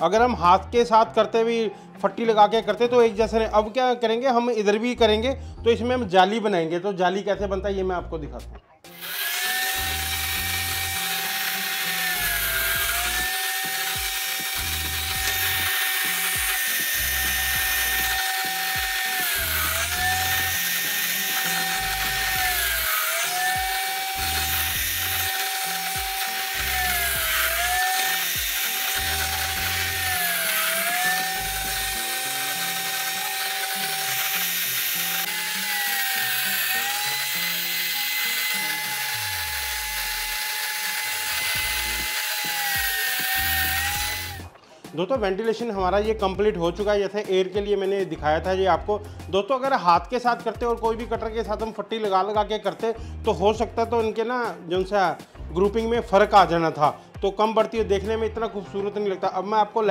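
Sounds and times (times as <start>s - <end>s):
circular saw cutting wood: 8.9s - 44.6s.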